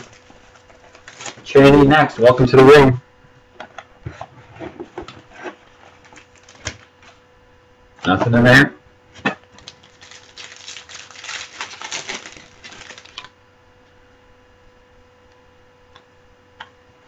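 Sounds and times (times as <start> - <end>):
cards and packaging clicking: 9.5 - 13.3.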